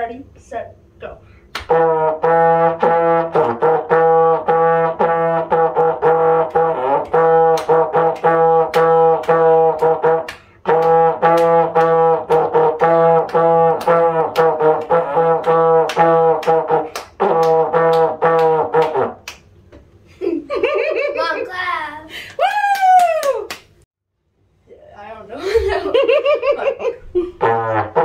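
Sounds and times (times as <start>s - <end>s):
sharp handclaps: 1.5s - 1.7s, 7.6s - 12.5s, 13.3s - 19.5s, 22.3s - 23.8s.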